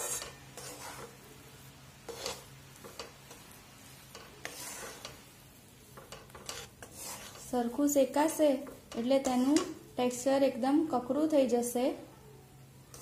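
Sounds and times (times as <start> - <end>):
spatula scraping a metal pan: 0.0 - 1.3, 2.0 - 9.8
soft sizzle: 0.0 - 13.0.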